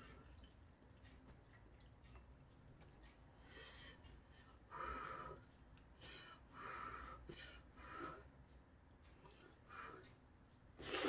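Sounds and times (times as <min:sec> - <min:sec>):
person blowing breathy puffs: 0:10.8 - 0:11.0.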